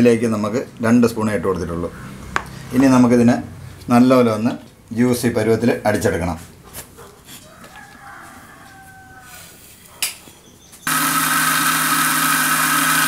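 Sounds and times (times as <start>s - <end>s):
electric mixer grinder blending: 10.9s - 13.0s.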